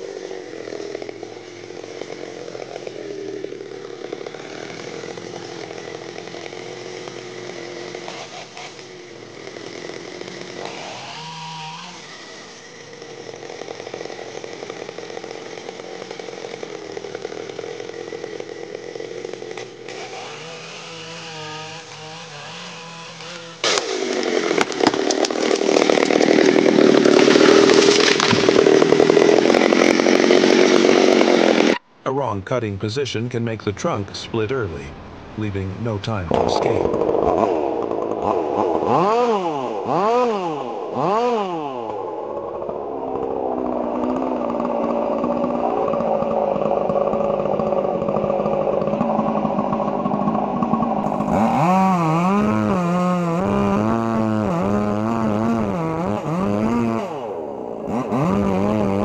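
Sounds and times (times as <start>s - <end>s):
chainsaw cutting wood: 0.0s - 31.8s, 35.5s - 59.0s
tree falling crash: 23.6s - 31.5s.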